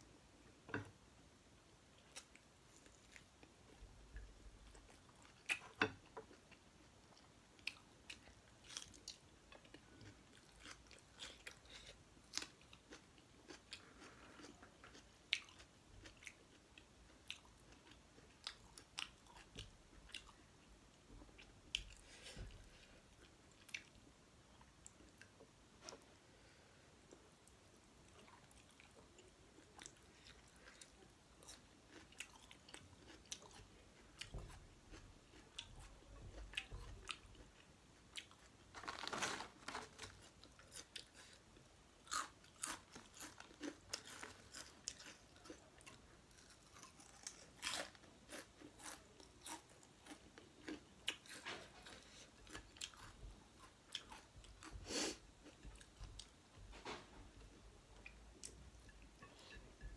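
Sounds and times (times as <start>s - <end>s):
chewing and wet smacking: 27.4s - 38.5s.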